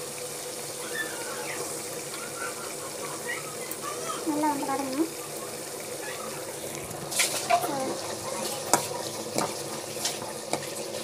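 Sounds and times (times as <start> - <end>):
frying sizzle: 0.0 - 11.0.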